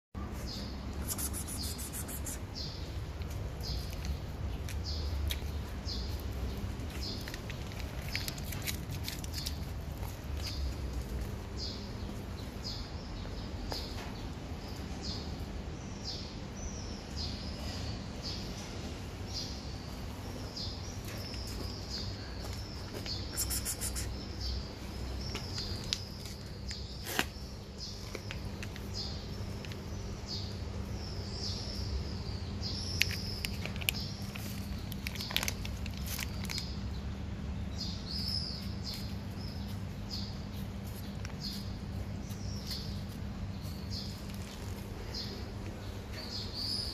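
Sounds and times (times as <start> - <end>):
small bird chirping: 0.2 - 14.1, 19.3 - 37.1.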